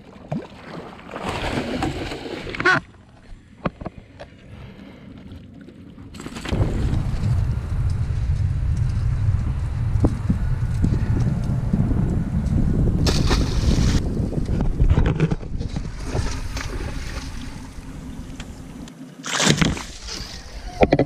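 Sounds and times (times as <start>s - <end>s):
wind buffeting microphone: 6.5s - 18.9s.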